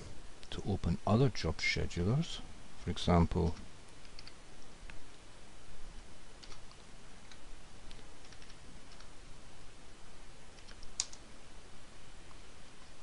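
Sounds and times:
computer keyboard keys tapping: 3.4 - 4.4, 6.4 - 9.1, 10.6 - 11.2.

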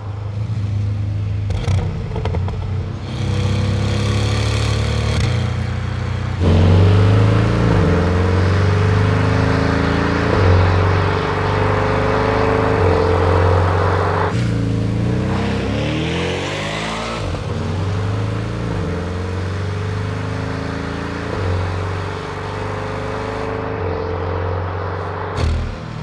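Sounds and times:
car engine and exhaust accelerating: 0.0 - 26.0
sharp exhaust cracks: 25.4 - 26.0.

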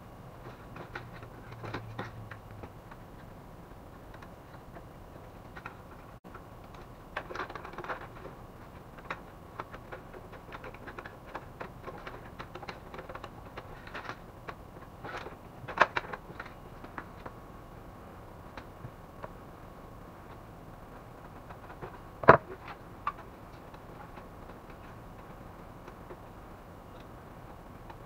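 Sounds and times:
plastic and metal parts clicking: 9.0 - 17.4.

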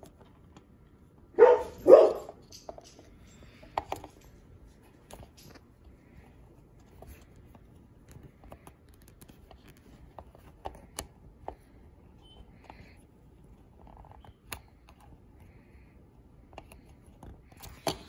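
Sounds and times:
plastic parts clicking: 16.5 - 18.0.

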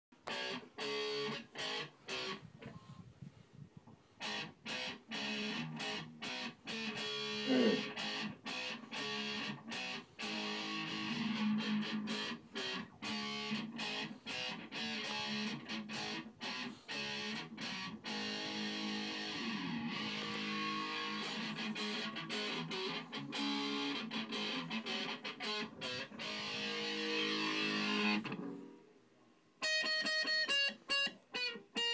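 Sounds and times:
electric guitar phrases: 0.2 - 2.8, 4.2 - 28.9, 29.6 - 31.9
guitar downward slide: 4.2 - 28.7.

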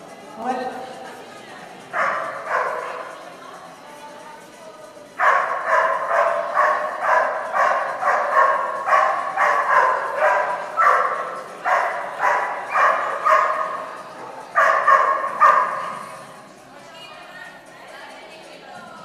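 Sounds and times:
dog barking: 2.0 - 2.9, 5.2 - 13.8, 14.5 - 15.9.

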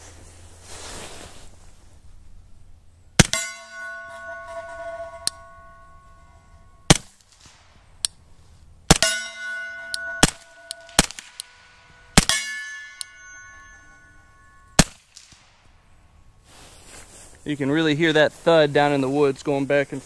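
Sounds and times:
bullets thudding into dirt: 3.2 - 3.5, 6.9 - 8.2, 8.9 - 9.2, 14.8 - 15.6
suppressed gunshots: 3.2 - 3.5, 10.2 - 11.5, 14.8 - 15.5
bullets clanging off steel plate: 3.2 - 7.0, 8.9 - 15.5.

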